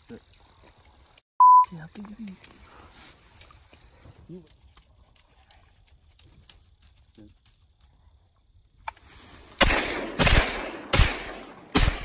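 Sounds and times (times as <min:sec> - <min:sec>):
shotgun shots with echo: 0:09.6 - 0:12.0.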